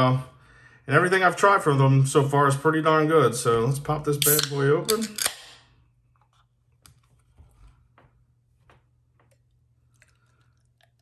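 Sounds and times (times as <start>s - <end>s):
can opening crack and fizz: 4.2s - 5.5s.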